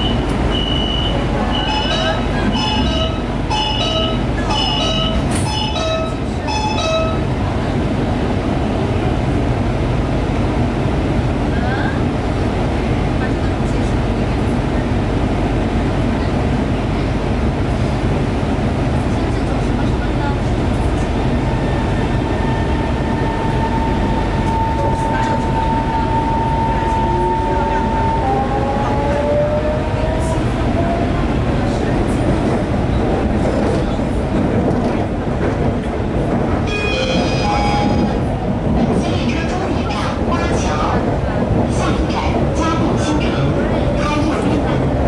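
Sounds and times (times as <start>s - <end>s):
alternating electronic warning beeps: 0.0s - 4.2s
train interior hum: 0.0s - 45.0s.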